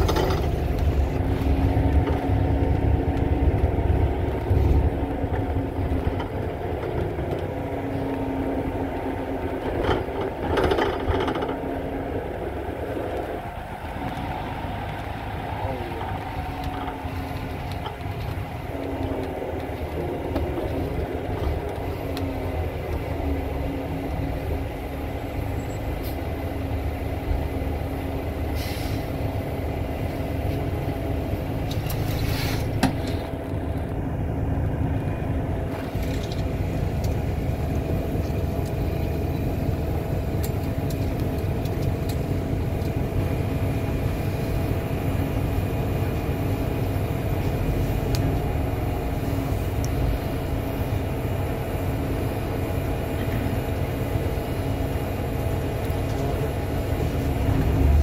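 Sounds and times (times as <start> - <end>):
bus engine rumble: 0.0 - 58.0
air hiss: 28.6 - 29.2.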